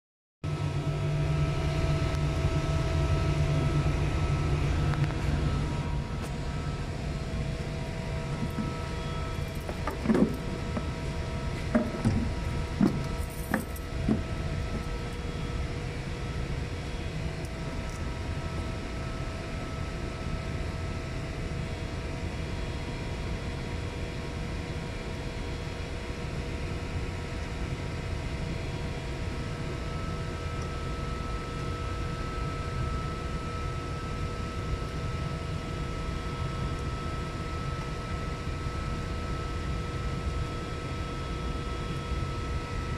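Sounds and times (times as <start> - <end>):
hvac machinery humming: 0.4 - 42.9
knocks and clicks of parts handled: 11.6 - 14.8.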